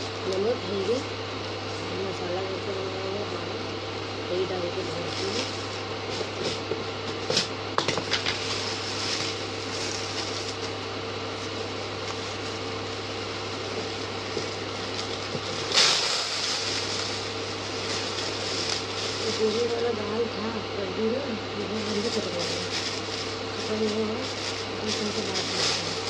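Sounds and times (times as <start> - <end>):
steady low hum: 0.0 - 26.0
plastic bag crinkling and rustling: 8.1 - 20.1, 21.6 - 26.0.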